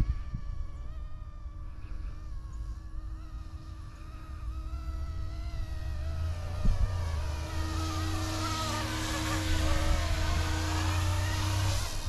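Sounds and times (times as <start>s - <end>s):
model helicopter motor whine: 0.0s - 12.0s
wind rumble on microphone: 0.0s - 12.0s.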